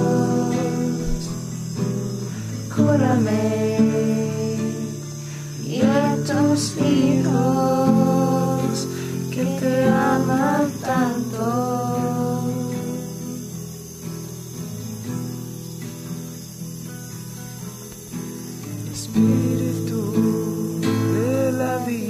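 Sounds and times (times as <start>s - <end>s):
person singing: 0.0s - 1.6s, 2.3s - 13.6s, 18.8s - 22.0s
plucked guitar: 0.0s - 22.0s.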